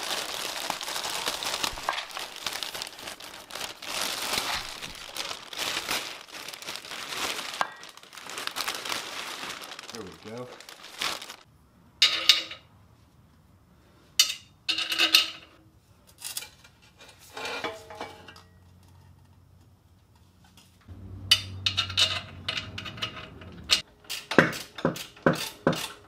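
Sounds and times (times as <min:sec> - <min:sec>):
metal exhaust pipes clanking: 0:20.9 - 0:26.0.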